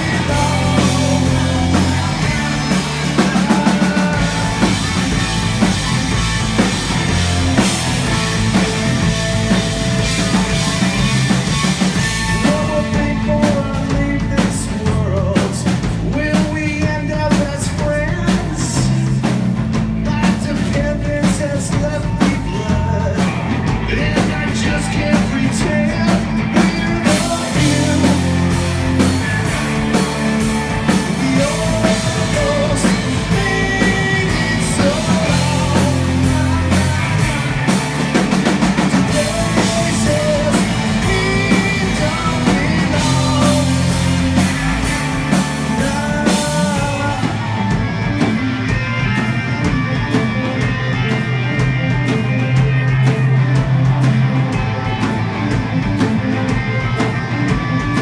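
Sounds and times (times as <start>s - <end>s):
man singing: 0.0s - 5.3s, 12.0s - 29.1s, 30.8s - 48.3s
bass guitar: 0.0s - 58.0s
drum kit: 0.0s - 58.0s
electric guitars: 0.0s - 58.0s.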